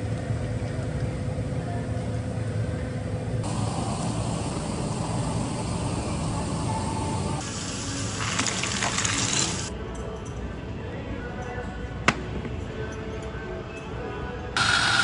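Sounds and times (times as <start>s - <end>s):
low mechanical drone: 0.0s - 9.7s, 14.5s - 15.0s.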